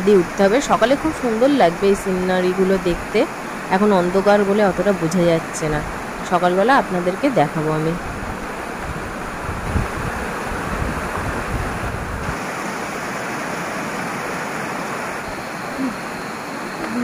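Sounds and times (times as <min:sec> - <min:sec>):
fast-flowing river rushing: 0:00.0 - 0:17.0
wind rumble on microphone: 0:07.6 - 0:12.5.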